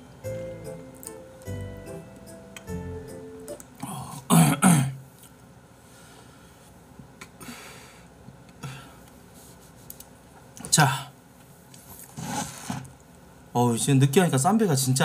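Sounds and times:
man clearing his throat: 4.0s - 5.0s
soft breath: 5.8s - 6.8s.

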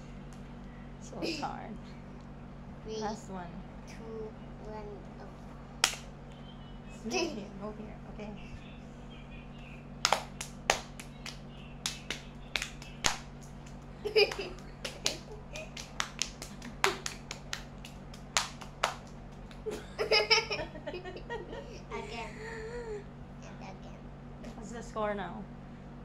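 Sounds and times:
low steady hum: 0.0s - 26.0s
hands slapping and clapping: 5.8s - 6.1s, 10.0s - 19.7s.

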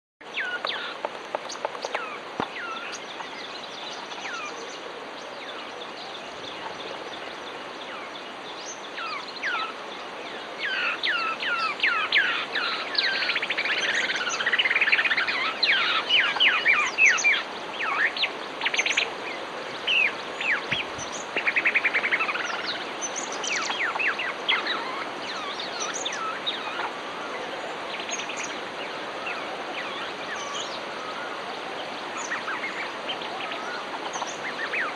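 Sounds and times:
background hiss: 0.2s - 34.9s
flock of birds calling: 10.4s - 34.9s.

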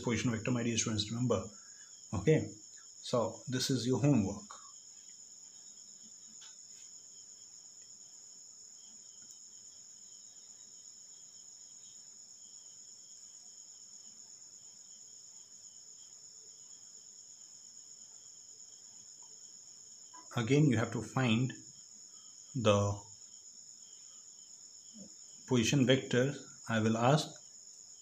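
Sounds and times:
insect trilling: 0.0s - 28.0s.

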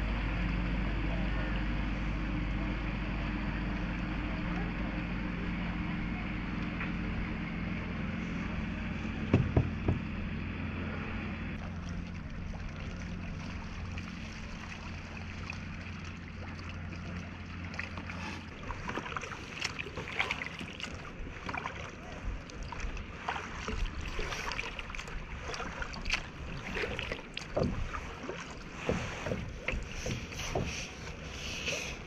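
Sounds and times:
steady low hum: 0.0s - 32.0s
knocks: 9.3s - 10.1s
paddle splashes and drips: 11.6s - 32.0s.

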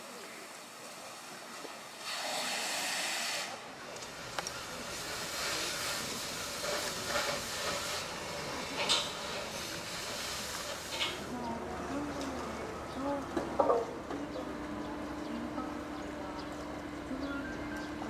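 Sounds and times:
steady hiss from roof work: 0.0s - 11.4s.

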